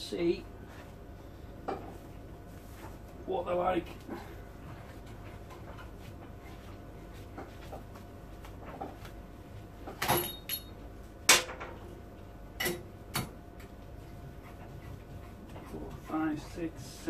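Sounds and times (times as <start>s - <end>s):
metal pipe and tools clinking: 10.0s - 10.8s.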